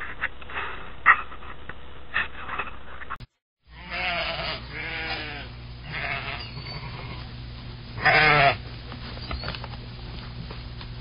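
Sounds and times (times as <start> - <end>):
sheep bleating: 3.7 - 7.3, 8.0 - 8.6.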